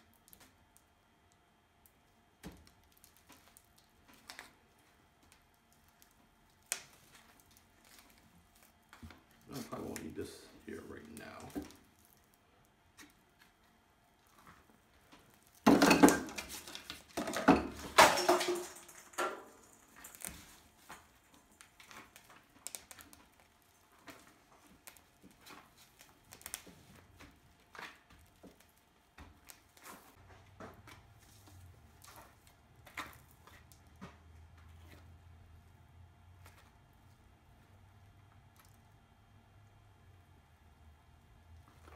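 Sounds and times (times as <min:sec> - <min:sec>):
wet cement pats and squishes: 0:00.0 - 0:15.6, 0:19.6 - 0:39.2.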